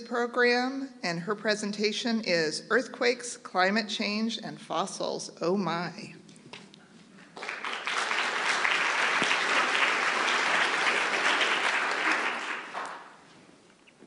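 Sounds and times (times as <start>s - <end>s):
audience applauding: 7.4s - 13.2s.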